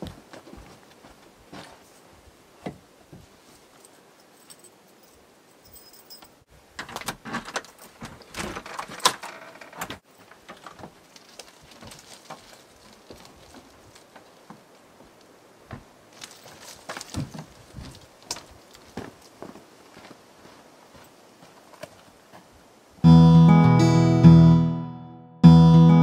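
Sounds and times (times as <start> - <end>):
keys jangling: 3.8 - 6.4.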